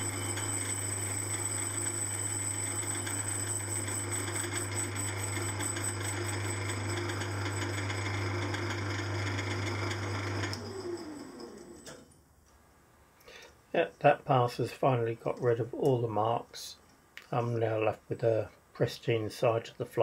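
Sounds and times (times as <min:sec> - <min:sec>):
metal lathe running: 0:00.0 - 0:11.8
lathe winding down: 0:00.0 - 0:12.0.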